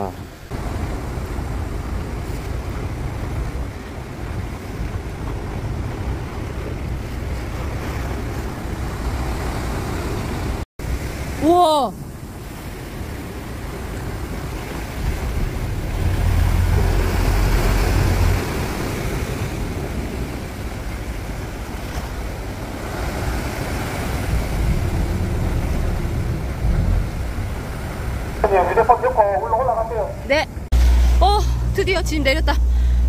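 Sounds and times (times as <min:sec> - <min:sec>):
waves breaking on rocks: 0:00.0 - 0:30.1
wind on microphone: 0:12.1 - 0:28.3
small boat engine: 0:12.2 - 0:28.3, 0:30.6 - 0:33.0.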